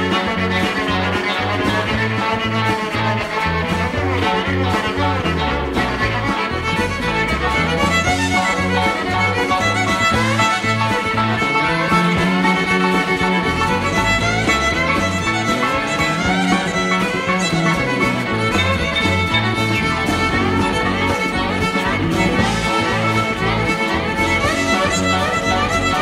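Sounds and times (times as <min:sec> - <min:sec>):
bass guitar: 0:00.0 - 0:26.0
drums: 0:00.0 - 0:26.0
electric guitar: 0:00.0 - 0:26.0
violin lead line: 0:00.0 - 0:26.0.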